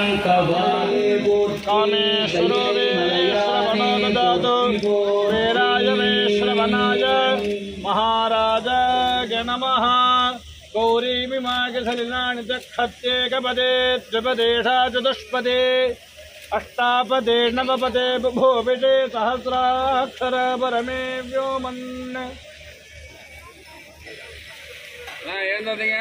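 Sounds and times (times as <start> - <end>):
man chanting devotional verses: 0.0 - 22.4.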